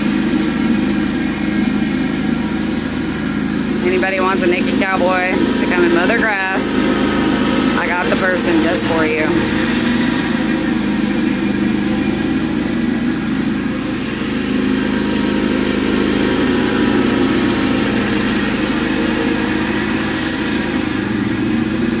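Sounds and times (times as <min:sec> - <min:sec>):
riding mower engine droning: 0:00.0 - 0:22.0.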